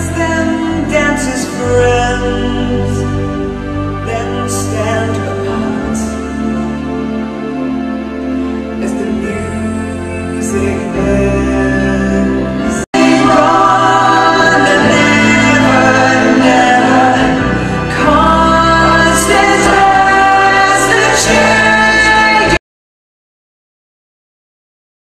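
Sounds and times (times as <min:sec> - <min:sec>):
pit band playing: 0:00.0 - 0:22.6
cast singing together: 0:12.9 - 0:22.6.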